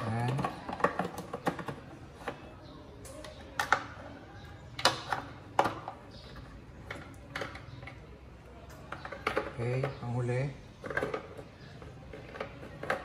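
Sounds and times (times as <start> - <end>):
plastic clicks and rattles: 0.0 - 2.4, 3.0 - 4.0, 4.7 - 10.0, 10.8 - 13.0.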